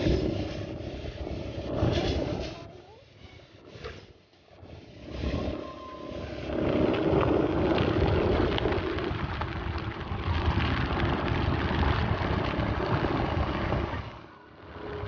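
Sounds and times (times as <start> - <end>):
vehicle engine and road noise: 5.0 - 15.0.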